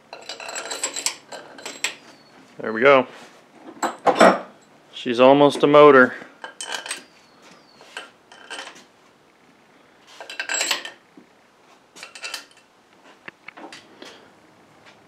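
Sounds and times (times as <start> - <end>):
metal bolts and wrench clinking: 0.1 - 2.0, 6.4 - 7.1, 7.9 - 8.8, 10.2 - 11.0, 12.0 - 12.7.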